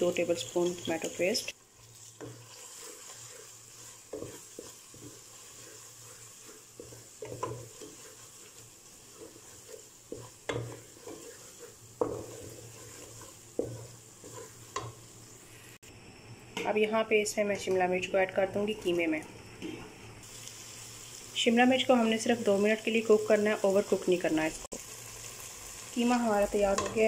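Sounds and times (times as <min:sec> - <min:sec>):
mince sizzling: 0:00.0 - 0:27.0
spatula scraping metal pot: 0:01.9 - 0:15.0.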